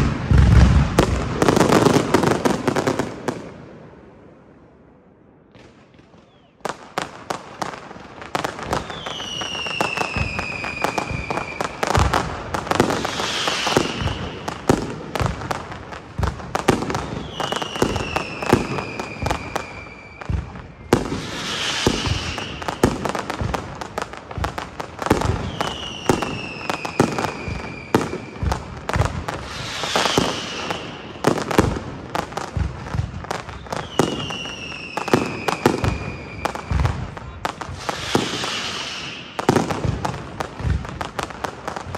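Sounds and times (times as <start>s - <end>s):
fireworks bangs and crackling: 0.0s - 41.9s
whistling firework shell: 6.1s - 6.6s, 8.6s - 12.2s, 12.8s - 14.8s, 16.7s - 23.6s, 25.1s - 31.7s, 32.6s - 40.7s.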